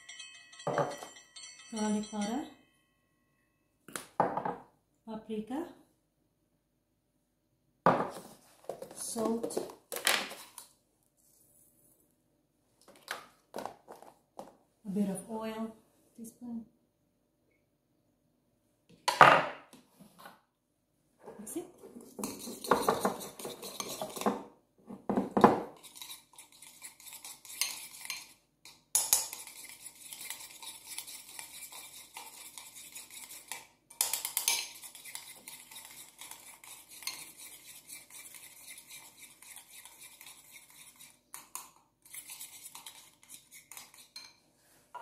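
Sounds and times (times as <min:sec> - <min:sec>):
spoon clinking against bowl: 0:00.0 - 0:02.6, 0:25.9 - 0:37.5
spoon scraping a ceramic bowl: 0:21.8 - 0:24.4, 0:25.7 - 0:44.4.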